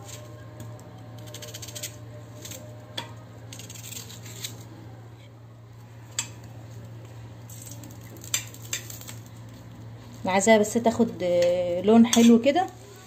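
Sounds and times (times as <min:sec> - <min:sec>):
knife slicing onion: 0:00.0 - 0:02.8
faint low hum: 0:00.0 - 0:13.0
onion rings tapping pan: 0:07.6 - 0:09.2.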